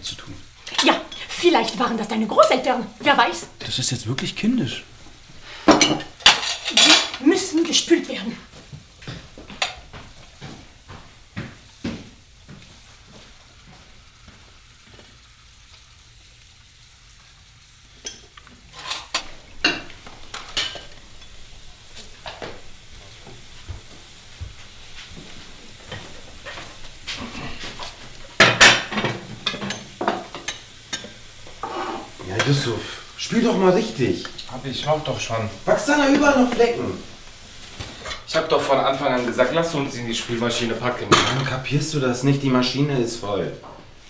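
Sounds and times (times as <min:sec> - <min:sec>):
crockery and cutlery clinking: 0:05.7 - 0:07.2, 0:18.0 - 0:21.4, 0:41.1 - 0:41.6.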